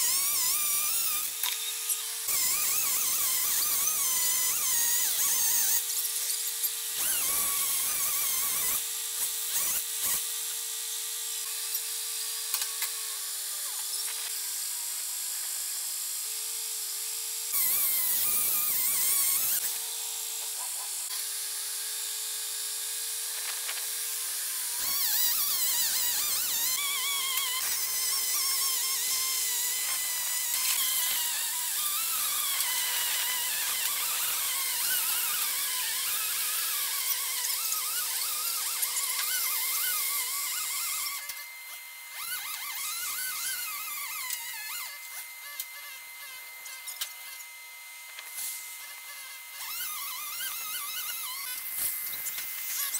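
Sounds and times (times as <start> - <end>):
hiss: 9.5 - 10.2, 17.5 - 19.7, 24.8 - 41.2.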